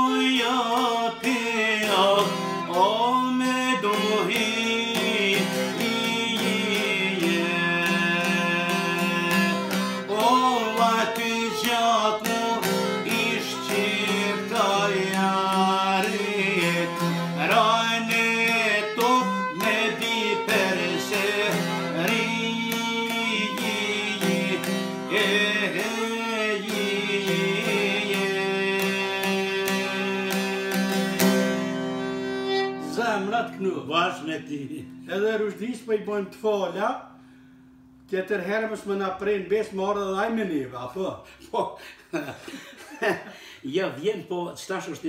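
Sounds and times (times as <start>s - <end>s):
man singing: 0.0s - 31.6s
bowed violin: 0.0s - 35.6s
plucked lute: 0.0s - 36.0s.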